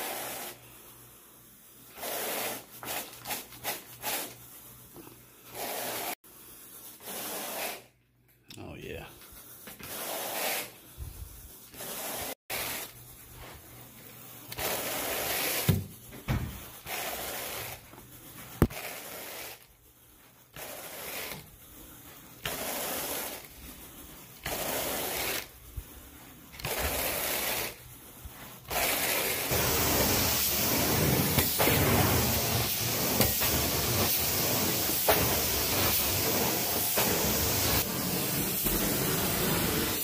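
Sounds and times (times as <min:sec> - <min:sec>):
carpet rake swishing through carpet: 0:00.0 - 0:01.0, 0:01.6 - 0:04.6, 0:05.4 - 0:07.9, 0:09.3 - 0:16.0, 0:16.6 - 0:40.0
extraction wand hissing: 0:20.6 - 0:40.0.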